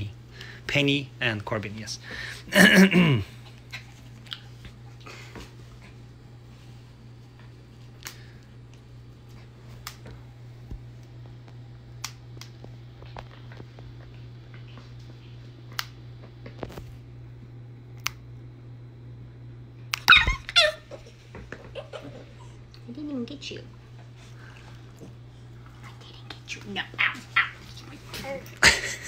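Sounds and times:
low steady hum: 0:00.0 - 0:29.0
puppy yelp: 0:20.0 - 0:21.1, 0:27.0 - 0:27.8.

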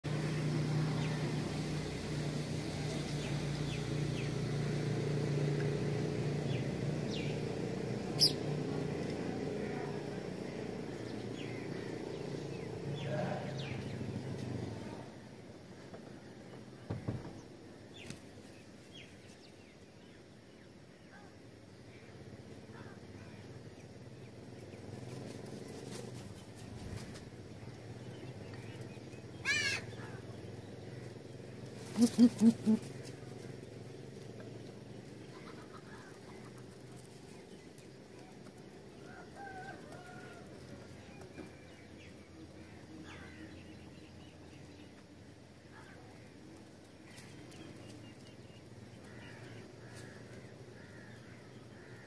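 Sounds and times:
small birds chirping: 0:00.0 - 0:52.0
soft knocks: 0:16.9 - 0:17.5.

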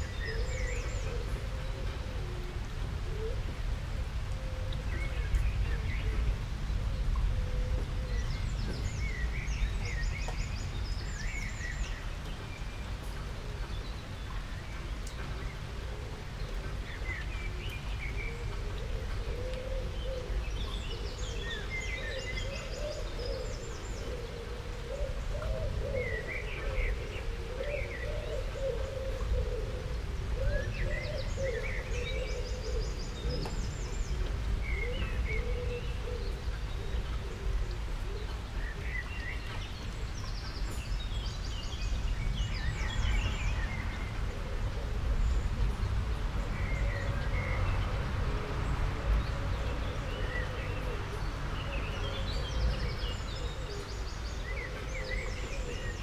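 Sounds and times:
small birds chirping: 0:05.0 - 0:15.7, 0:30.5 - 0:44.2.

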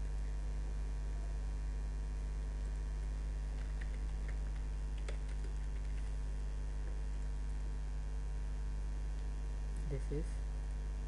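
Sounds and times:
electrical mains hum: 0:00.0 - 0:11.0
computer keyboard key clicks: 0:03.6 - 0:06.1.

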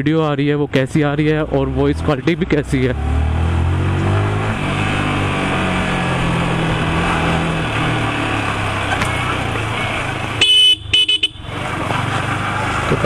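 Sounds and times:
road noise: 0:00.0 - 0:13.0
motorcycle engine running: 0:03.7 - 0:13.0.

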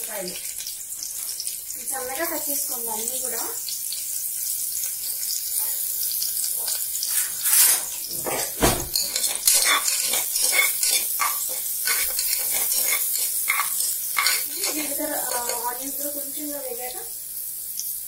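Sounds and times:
onions sizzling in hot fat: 0:00.0 - 0:18.0
metal ladle scraping a pot: 0:06.5 - 0:15.8.

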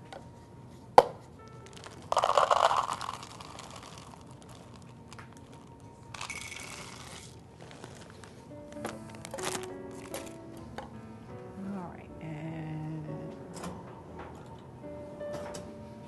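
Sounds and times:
chocolate chips rattling into a cup: 0:01.6 - 0:08.3, 0:09.1 - 0:10.4.

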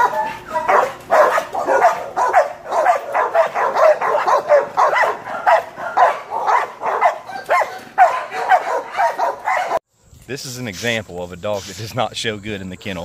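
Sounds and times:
dogs barking: 0:00.0 - 0:09.8.

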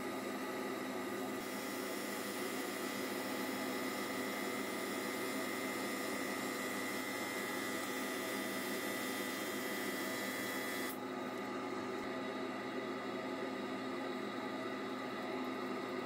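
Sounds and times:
lathe motor hum: 0:01.0 - 0:11.0.

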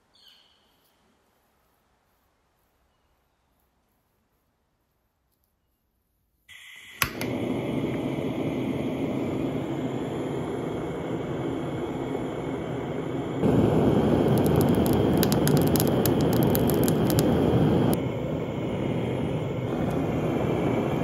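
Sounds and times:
torch igniter click: 0:06.5 - 0:08.8, 0:14.0 - 0:18.0, 0:19.7 - 0:20.3
blowtorch flame rushing: 0:06.5 - 0:21.0
gas hissing: 0:06.5 - 0:21.0.

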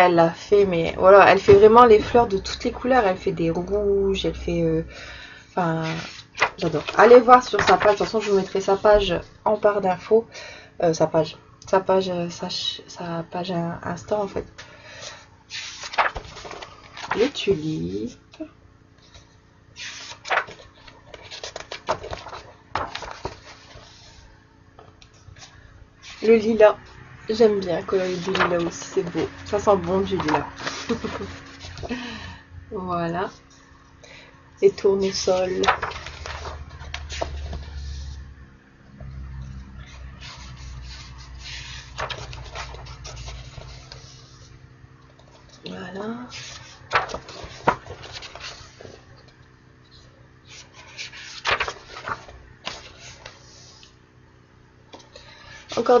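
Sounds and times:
paper pages rustling: 0:05.8 - 0:09.2, 0:14.5 - 0:17.5, 0:19.0 - 0:24.3, 0:27.4 - 0:32.0, 0:34.7 - 0:38.2, 0:39.8 - 0:49.4, 0:50.5 - 0:53.9
sharp paper clicks: 0:35.6 - 0:37.4, 0:50.8 - 0:53.4.

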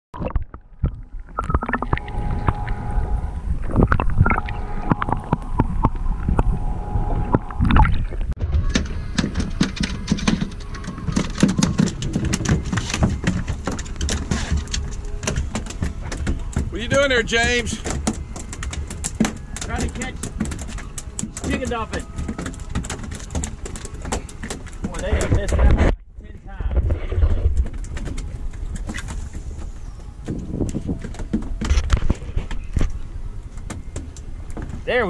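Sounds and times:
muffled underwater hum: 0:00.2 - 0:34.8
fish flopping on boat deck: 0:07.3 - 0:26.0, 0:26.6 - 0:35.0.

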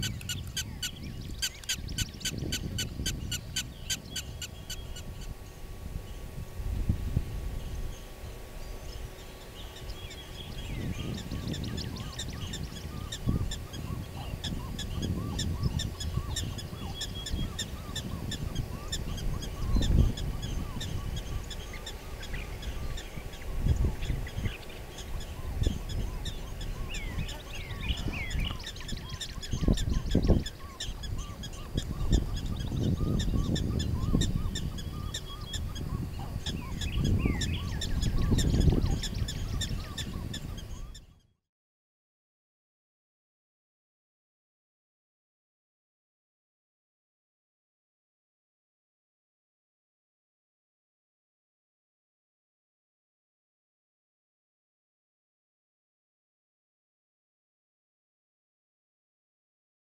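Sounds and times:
high chirps and calls: 0:00.0 - 0:05.3, 0:07.6 - 0:41.3
wind rumbling on microphone: 0:00.0 - 0:41.3.

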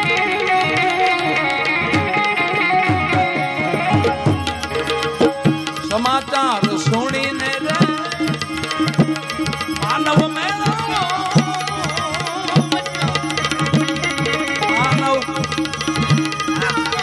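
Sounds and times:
harmonium chords: 0:00.0 - 0:17.0
small hand cymbals: 0:00.0 - 0:17.0
tabla strokes: 0:00.0 - 0:17.0
man singing: 0:05.8 - 0:17.0.

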